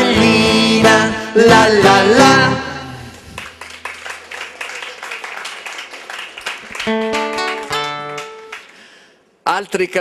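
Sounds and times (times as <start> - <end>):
audience applause: 3.4 - 8.8.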